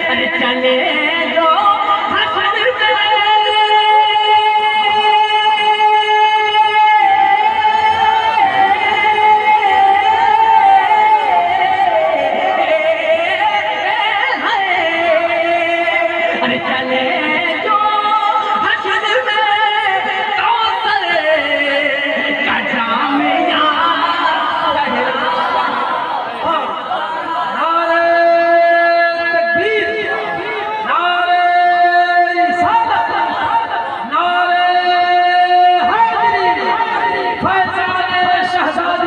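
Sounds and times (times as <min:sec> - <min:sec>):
man singing in a high voice: 0:00.0 - 0:39.0.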